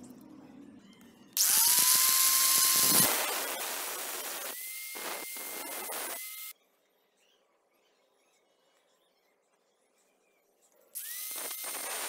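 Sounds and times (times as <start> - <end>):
angle grinder motor whine: 1.4 - 6.5, 11.0 - 12.0
grinder cutting steel: 1.4 - 6.5, 11.0 - 12.0.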